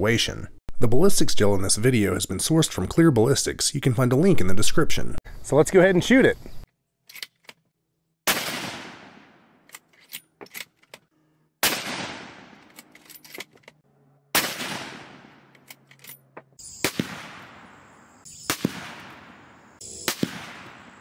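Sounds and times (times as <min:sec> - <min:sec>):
rifle shots echoing: 0:08.3 - 0:09.5, 0:11.6 - 0:12.8, 0:14.3 - 0:15.5, 0:16.8 - 0:17.8, 0:18.5 - 0:21.0.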